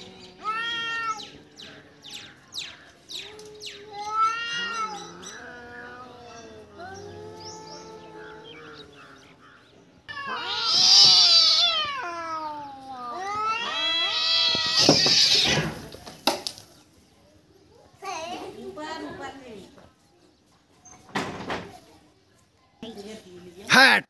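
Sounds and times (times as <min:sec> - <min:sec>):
cat yowling: 0:00.4 - 0:01.4, 0:03.4 - 0:08.8, 0:10.1 - 0:15.8.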